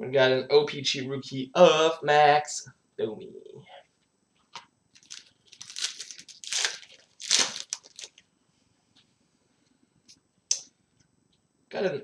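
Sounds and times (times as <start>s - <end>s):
card pack crinkling: 4.5s - 8.2s.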